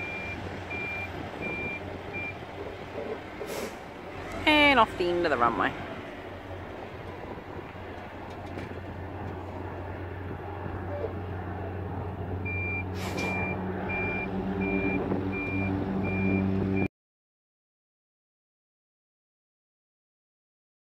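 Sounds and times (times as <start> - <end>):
reversing alarm beeping: 0.0 - 2.4, 12.4 - 16.9
deep engine hum: 0.0 - 16.9
steady engine drone: 0.0 - 16.9.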